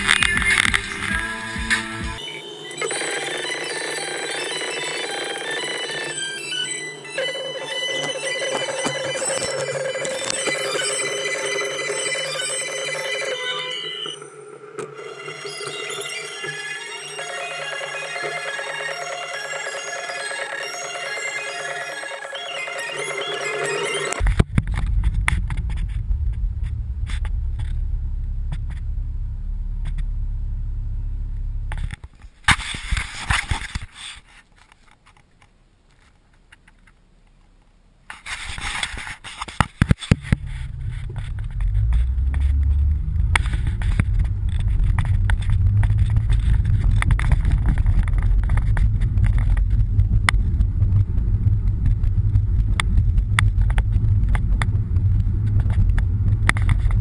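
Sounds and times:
car interior road rumble: 24.2s - 32.4s, 40.1s - 57.0s.

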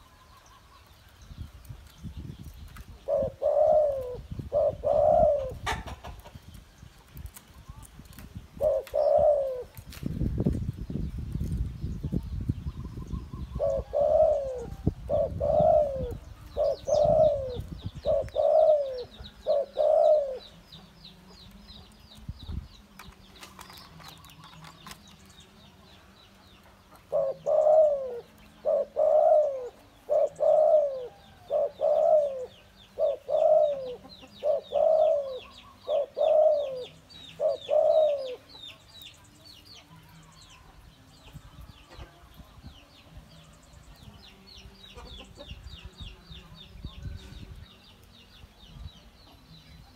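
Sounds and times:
dove cooing: 3.0s - 6.3s, 8.6s - 9.8s, 13.3s - 20.6s, 27.0s - 38.8s.

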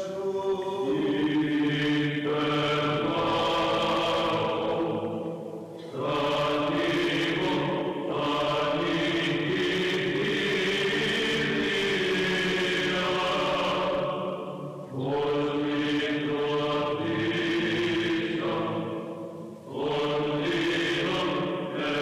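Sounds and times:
steady low drone: 0.0s - 8.2s
voices chanting long held notes: 0.0s - 22.0s.

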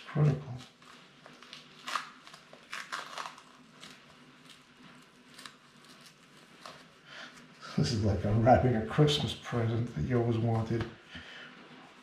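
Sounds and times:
dressing crinkling being peeled: 0.0s - 8.3s.

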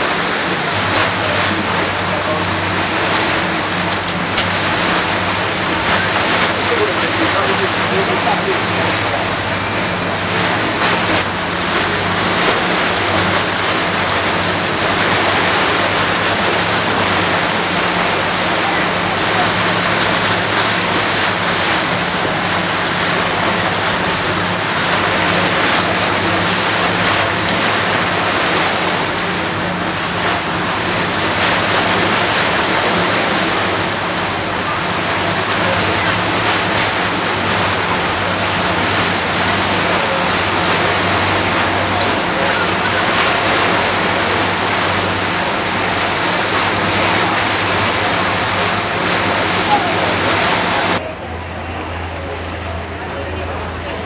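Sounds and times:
boat engine humming: 0.0s - 54.0s
rush of wind and water: 0.0s - 54.0s.

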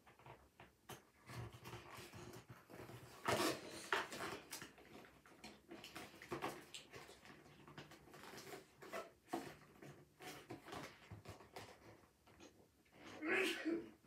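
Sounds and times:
packaging rustling and clicking: 1.2s - 12.0s.

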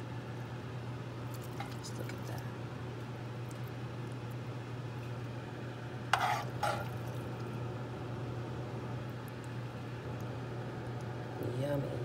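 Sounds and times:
steady low hum: 0.0s - 12.0s
metal spoon scraping pan: 6.1s - 7.0s.

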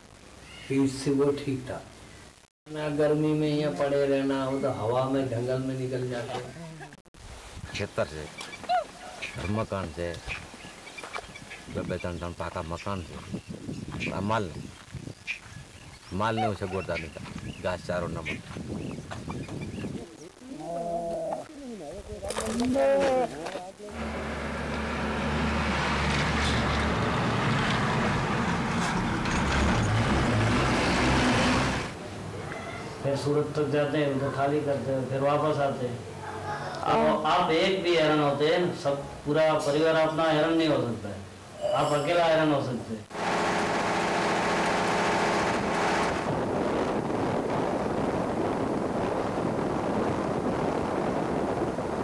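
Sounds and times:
wind and road noise: 7.2s - 20.4s, 23.4s - 33.1s, 43.0s - 52.0s
lorry diesel engine running: 23.9s - 32.0s, 43.2s - 46.4s
broad rushing noise: 23.9s - 32.4s, 43.1s - 49.9s.

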